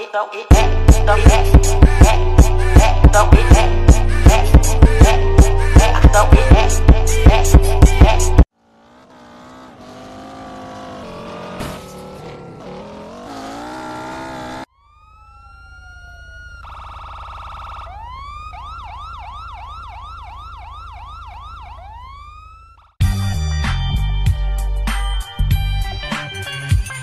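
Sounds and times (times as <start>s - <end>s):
vehicle with bending tones: 1.3s - 23.0s
electronic police siren wailing: 12.3s - 23.0s.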